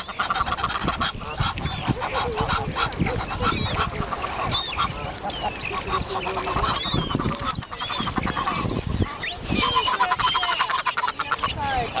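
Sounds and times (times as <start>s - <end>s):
geese honking: 0.0s - 12.0s
high chirping calls: 0.0s - 12.0s
waterbird calls: 0.0s - 12.0s.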